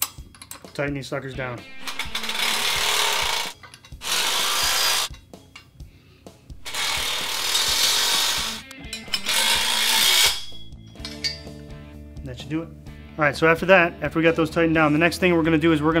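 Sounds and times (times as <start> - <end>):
impact driver bursts: 1.7 - 5.1, 6.6 - 8.6.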